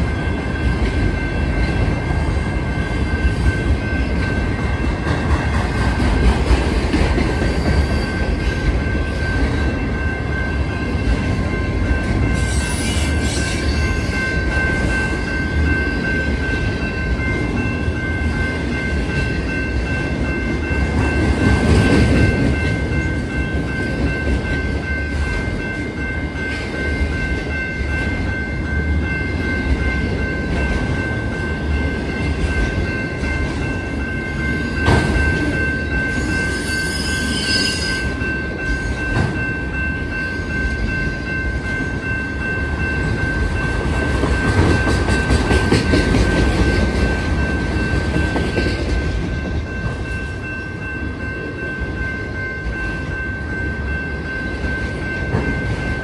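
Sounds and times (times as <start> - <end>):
high multi-tone ringing: 0.0 - 6.2, 6.8 - 56.0
train wheels rumbling on rails: 0.0 - 56.0.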